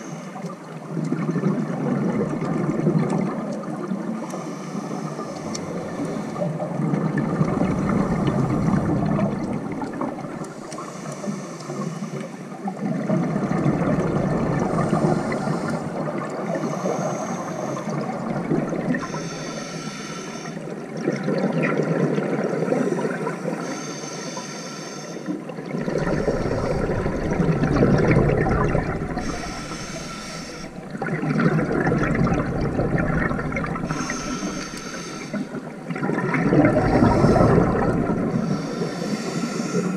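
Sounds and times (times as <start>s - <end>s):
exhaled bubbles rushing: 0.9s - 4.2s, 5.4s - 10.6s, 12.8s - 16.8s, 17.7s - 19.2s, 20.7s - 23.3s, 25.5s - 38.9s
regulator inhale hiss: 4.3s - 6.6s, 10.4s - 12.6s, 14.8s - 16.0s, 16.6s - 18.1s, 19.0s - 20.7s, 22.8s - 25.4s, 29.0s - 31.0s, 33.8s - 35.7s, 37.0s - 39.9s.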